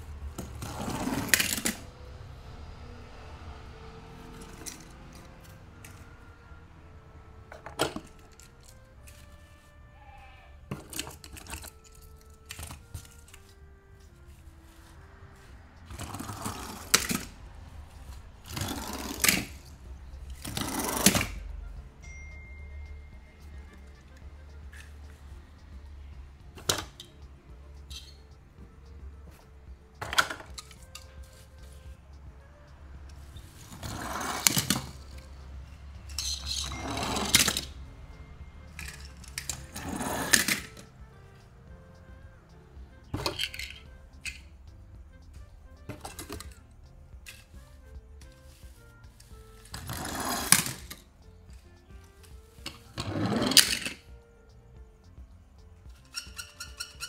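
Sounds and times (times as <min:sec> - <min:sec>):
soft background music: 0:00.0 - 0:57.0.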